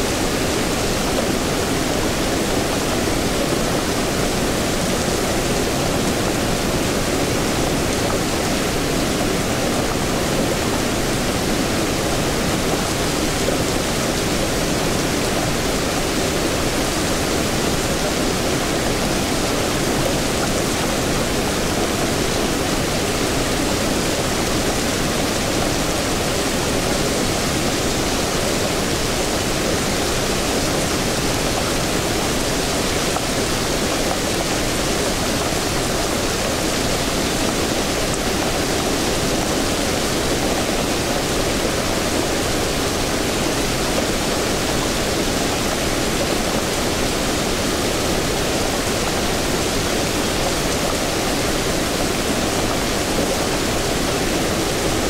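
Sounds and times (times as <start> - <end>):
rain falling: 0.0 - 55.0.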